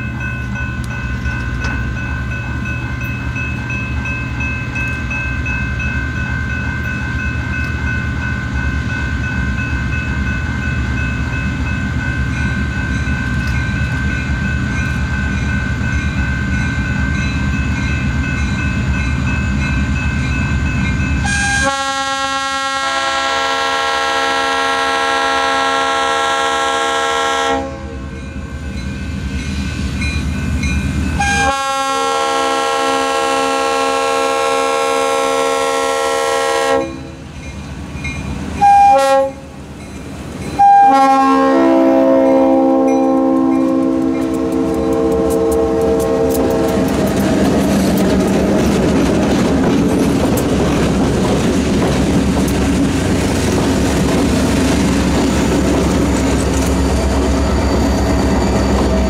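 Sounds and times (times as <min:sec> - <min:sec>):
diesel locomotive rumble: 0:00.0 - 0:59.0
locomotive horn blast: 0:21.2 - 0:28.1, 0:31.2 - 0:37.2, 0:38.6 - 0:39.5, 0:40.6 - 0:47.0.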